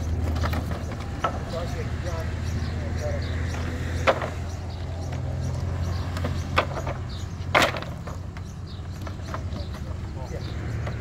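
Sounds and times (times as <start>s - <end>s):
engine running with low hum: 0.0s - 11.0s
sharp knocks: 4.0s - 4.4s, 6.2s - 8.2s.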